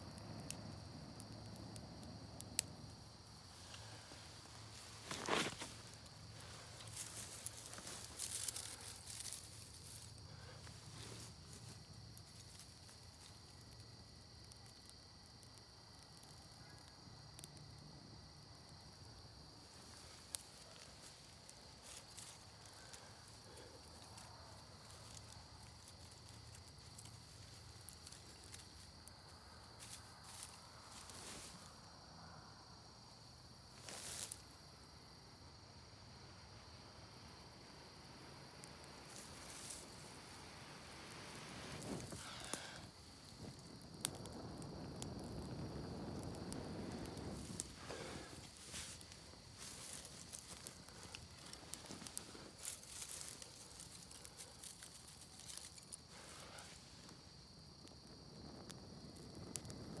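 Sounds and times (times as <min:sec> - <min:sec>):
fire crackling and popping: 0:00.0 - 0:32.1, 0:33.0 - 1:00.0
faint high insect drone: 0:00.0 - 1:00.0
dry grass rustling: 0:02.6 - 0:13.6, 0:19.5 - 0:31.8, 0:33.8 - 0:34.5, 0:38.8 - 0:44.2, 0:44.9 - 0:57.3
puff of breath: 0:42.1 - 0:42.9, 0:47.7 - 0:48.5.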